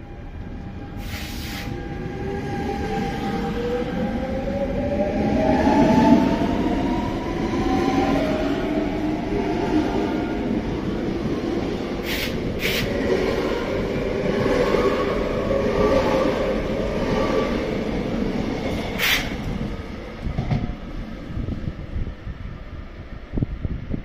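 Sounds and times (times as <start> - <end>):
train rumbling past: 0.0 - 24.0.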